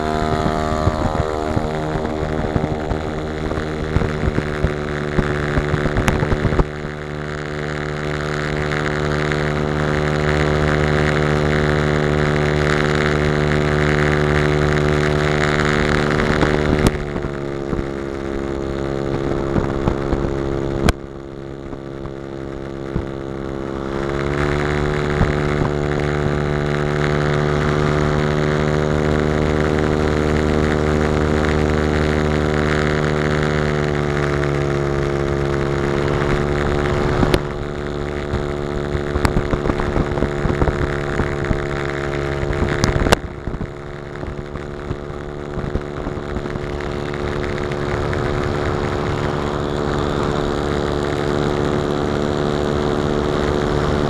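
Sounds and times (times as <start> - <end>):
model plane engine and propeller: 0.0 - 54.0
air rushing past: 33.2 - 52.6.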